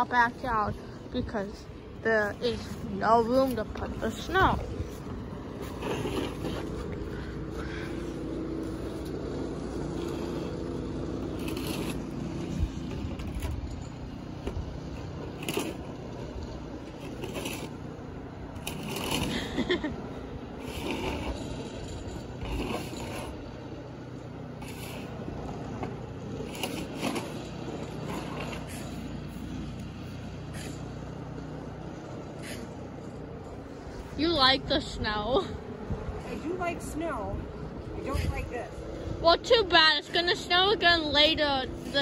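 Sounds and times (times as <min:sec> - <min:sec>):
steady low hum: 0:00.0 - 0:42.0
footsteps crunching in snow: 0:02.2 - 0:09.2.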